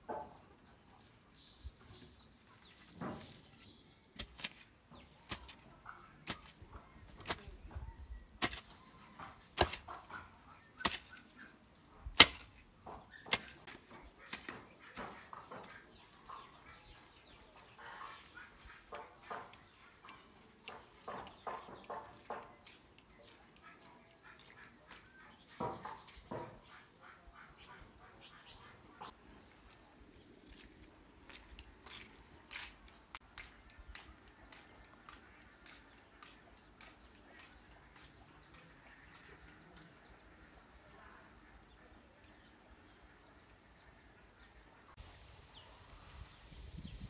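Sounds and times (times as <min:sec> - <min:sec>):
hoe chopping into soil: 0:04.2 - 0:07.6, 0:08.4 - 0:08.8, 0:09.4 - 0:10.2, 0:10.8 - 0:11.3, 0:12.1 - 0:15.8.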